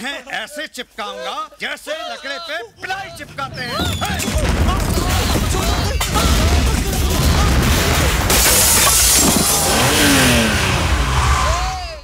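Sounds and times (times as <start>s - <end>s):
loud shattering crash: 3.7s - 11.2s
action music with heavy bass: 4.4s - 11.5s.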